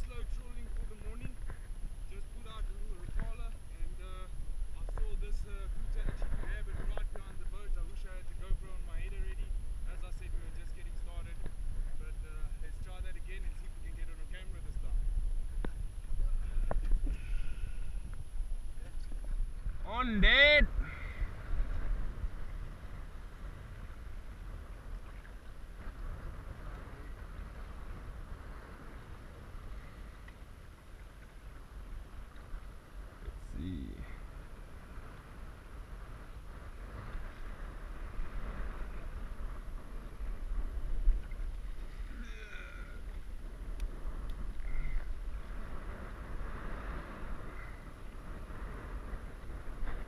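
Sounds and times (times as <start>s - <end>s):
jetski engine rumble: 0.0s - 50.0s
wind on microphone: 0.0s - 50.0s
water lapping: 13.2s - 50.0s
water slapping a hull: 34.4s - 50.0s.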